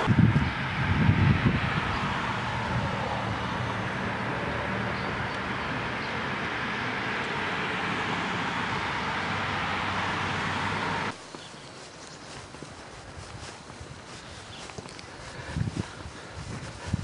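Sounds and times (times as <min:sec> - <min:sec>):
low engine hum: 0:00.0 - 0:11.2
road traffic rushing: 0:00.0 - 0:17.0.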